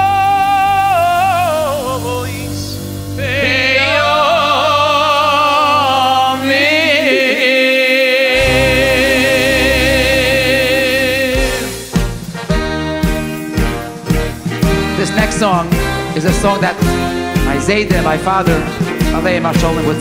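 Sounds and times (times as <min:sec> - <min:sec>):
person singing with vibrato: 0:00.0 - 0:12.2
live band playing: 0:08.3 - 0:20.0.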